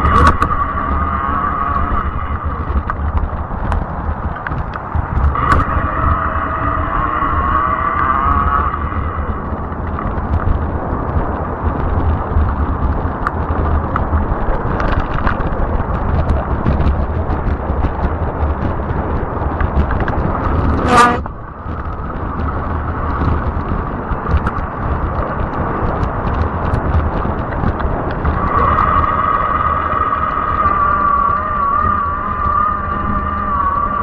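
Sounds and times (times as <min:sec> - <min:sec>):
ticks over bumps: 0:00.0 - 0:34.0
wind and tyre rumble: 0:00.0 - 0:34.0
horn toot: 0:20.7 - 0:21.3.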